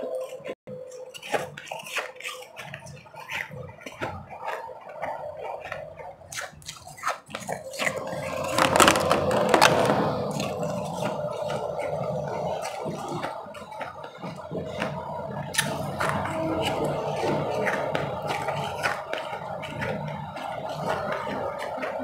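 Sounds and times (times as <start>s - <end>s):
ice crackling and crunching: 7.8s - 10.5s.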